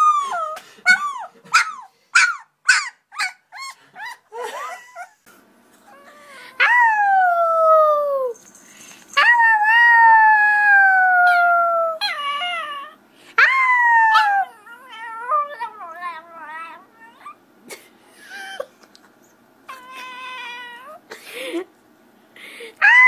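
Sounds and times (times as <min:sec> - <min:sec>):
small dog howling: 0:09.2 - 0:17.4, 0:22.8 - 0:23.0.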